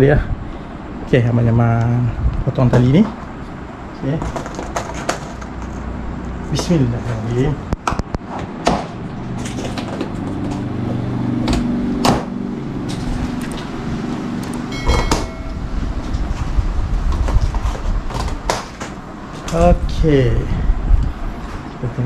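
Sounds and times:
low steady hum: 9.0 - 22.0.

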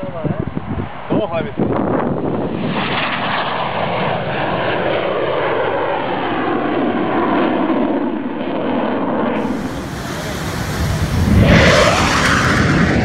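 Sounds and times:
jet engines rushing: 9.4 - 13.0.

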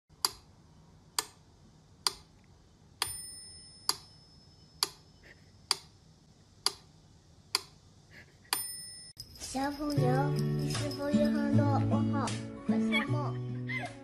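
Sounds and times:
slow clock ticking: 0.1 - 0.5, 2.0 - 2.3, 6.6 - 6.9
bell-like ding: 3.0 - 4.8, 8.6 - 11.7.

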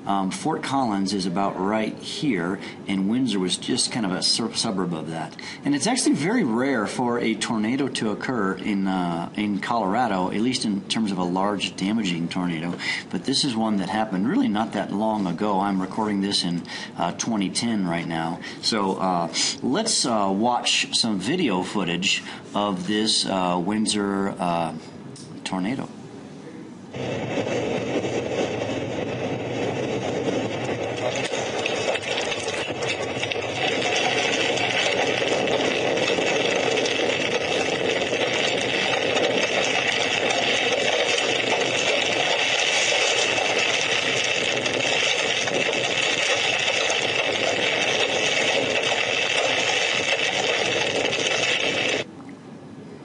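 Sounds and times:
storm wind rushing: 26.9 - 49.4
low rumble: 26.9 - 52.0.

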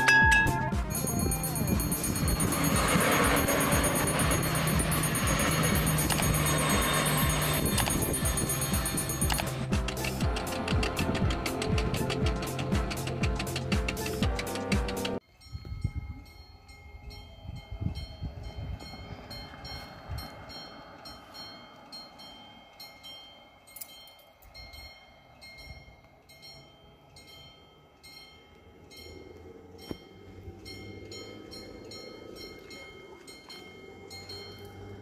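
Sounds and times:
level crossing warning bell: 0.0 - 9.7, 15.2 - 35.0.

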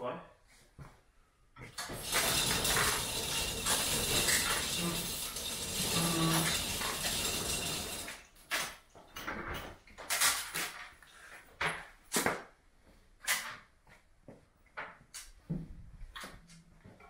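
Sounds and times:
chain door rattling open: 1.8 - 10.8.

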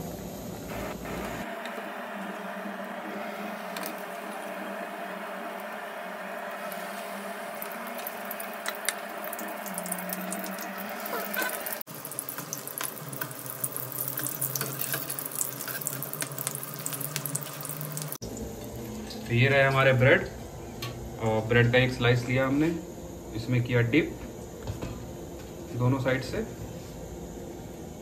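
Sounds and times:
chillies frying in hot oil: 6.5 - 18.2.

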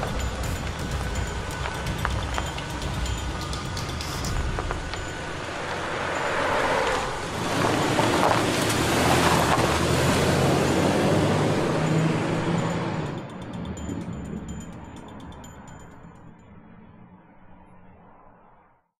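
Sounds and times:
car driving past: 0.0 - 14.0.

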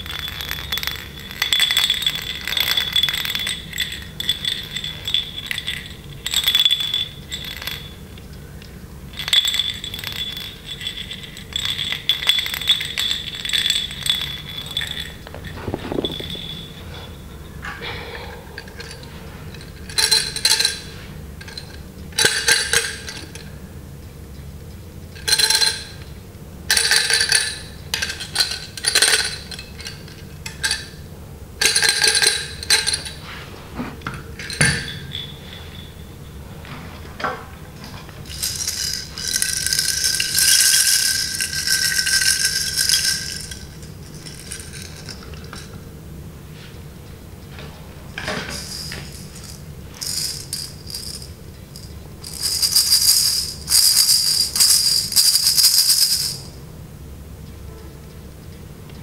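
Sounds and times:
plastic baby rattle shaken: 14.5 - 16.5, 38.2 - 45.6, 48.5 - 56.5.

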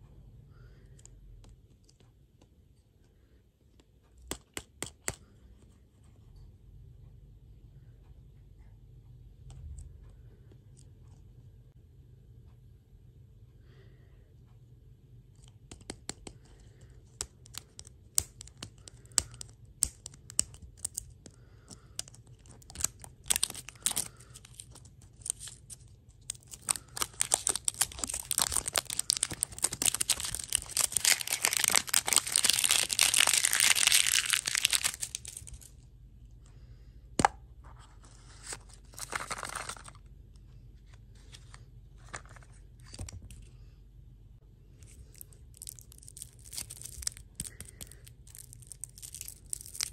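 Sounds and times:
plastic wrapper crackling and tearing: 17.2 - 21.1, 21.7 - 35.8, 38.5 - 40.0, 44.8 - 49.9.

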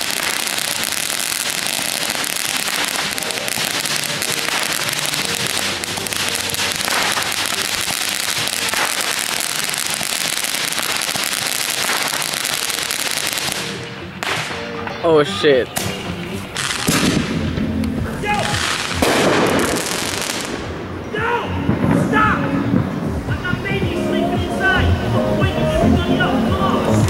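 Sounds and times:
firework fountain hissing crackle: 0.0 - 14.7, 16.5 - 17.6, 18.3 - 21.1.

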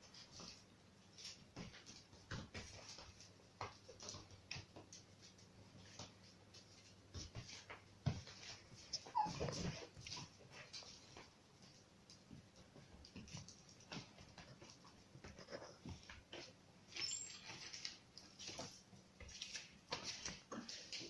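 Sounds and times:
claws and hooves scrabbling on floor: 0.0 - 21.0
dog crying: 9.0 - 9.9.

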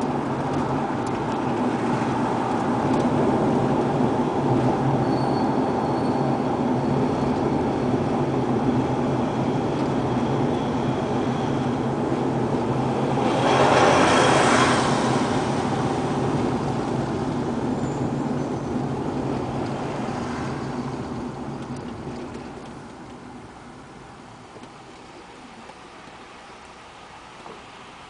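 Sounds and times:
car engine hum: 0.0 - 28.0
tyre and road rumble: 0.0 - 28.0
rushing noise: 1.6 - 21.0.

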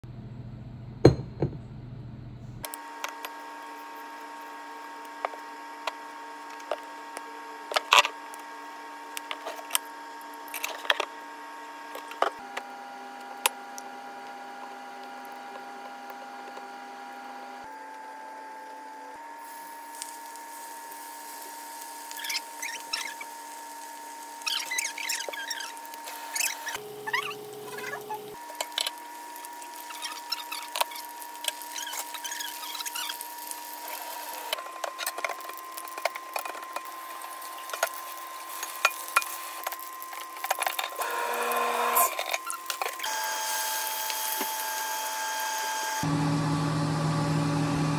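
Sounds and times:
multi-tone hum: 0.1 - 47.9
fish frying in oil: 19.4 - 45.2.

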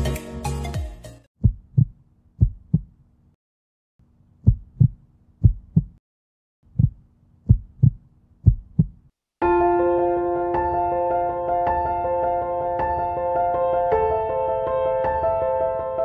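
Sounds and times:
heartbeat thumps: 1.4 - 3.0, 4.4 - 6.0, 6.7 - 9.1.

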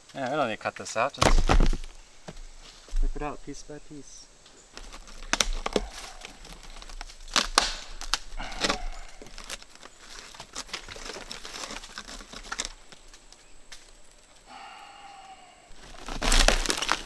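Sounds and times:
roof plywood and shingles tearing: 4.7 - 14.4, 15.7 - 17.0.

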